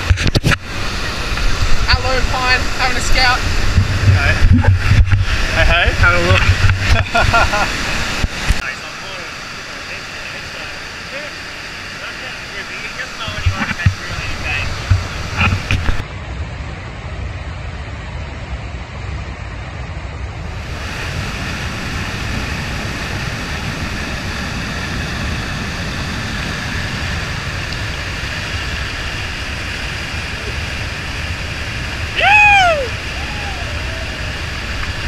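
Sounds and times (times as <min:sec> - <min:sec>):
whitewater rapid rushing: 0:00.0 - 0:16.0, 0:20.6 - 0:35.0
person whooping shout: 0:32.2 - 0:34.3.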